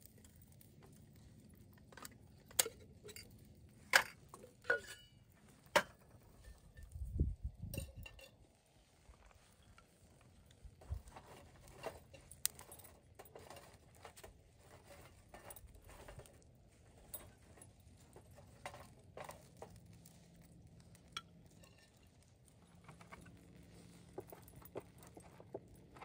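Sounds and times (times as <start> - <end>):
faint small clicks and clinks: 9.2 - 26.0.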